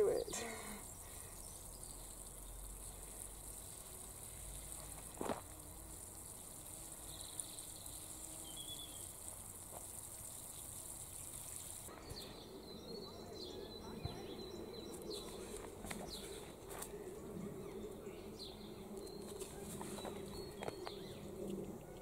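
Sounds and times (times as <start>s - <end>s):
watering can spray hiss: 0.0s - 12.4s.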